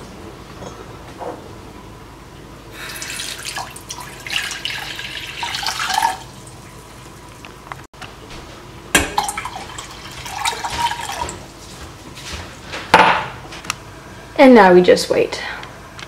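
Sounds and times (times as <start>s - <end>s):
water pouring into metal pan: 2.8s - 6.8s.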